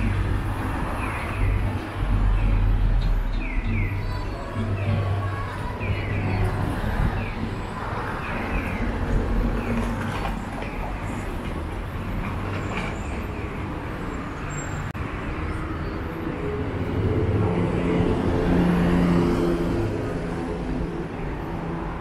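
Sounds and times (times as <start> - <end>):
vehicle engine hum: 0.0 - 14.2
city street traffic: 0.0 - 22.0.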